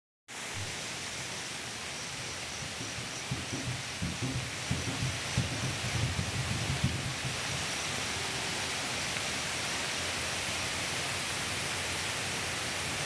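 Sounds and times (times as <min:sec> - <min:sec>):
forest ambience hiss: 0:00.3 - 0:13.0
soft low thumps: 0:02.6 - 0:07.8.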